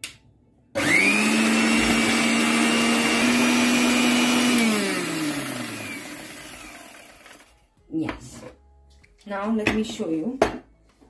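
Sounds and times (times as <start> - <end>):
mixer grinder motor whining: 0.8 - 7.6.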